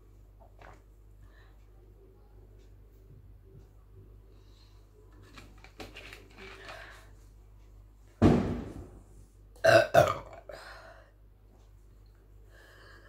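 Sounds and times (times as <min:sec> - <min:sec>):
woman burping loudly: 0:09.6 - 0:10.6.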